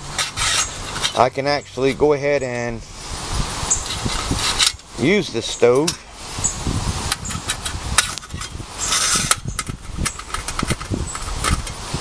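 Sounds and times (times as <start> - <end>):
metal rods scraping sheet metal: 0.0 - 2.1, 3.7 - 6.1, 7.1 - 11.8.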